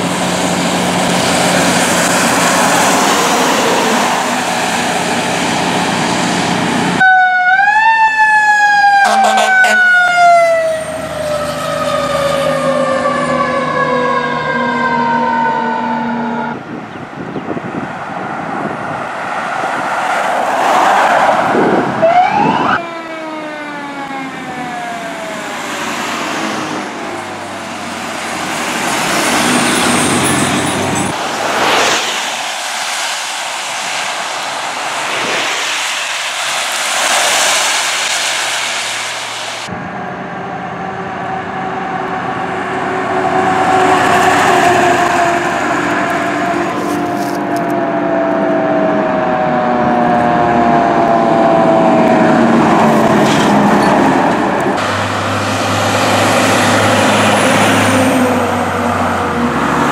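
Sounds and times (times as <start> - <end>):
truck engine: 0.0 - 7.0, 9.0 - 59.9
road noise: 0.0 - 59.9
fire truck siren winding: 7.0 - 16.6, 22.0 - 25.7, 46.0 - 52.8.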